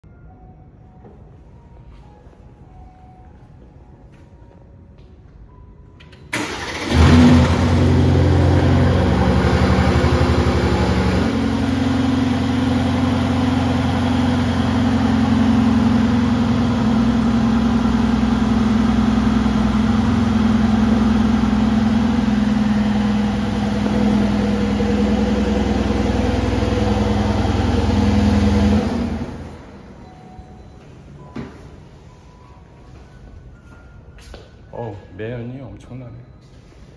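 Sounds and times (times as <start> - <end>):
car engine starting and idling: 5.9 - 32.4.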